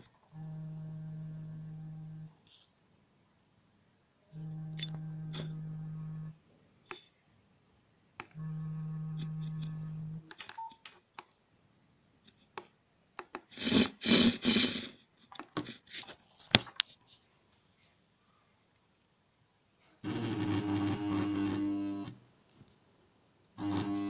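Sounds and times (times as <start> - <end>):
low steady buzz: 0.3 - 10.3, 20.0 - 22.4, 23.4 - 24.0
keypad clicks: 9.2 - 11.3
rough rubbing noise: 13.5 - 15.0.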